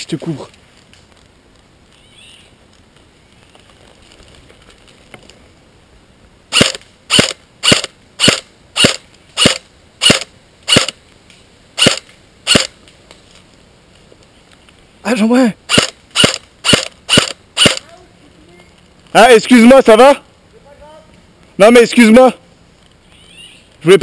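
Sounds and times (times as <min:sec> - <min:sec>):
airsoft rifle single shots: 0:06.5 - 0:11.0, 0:11.8 - 0:12.7, 0:15.7 - 0:17.8.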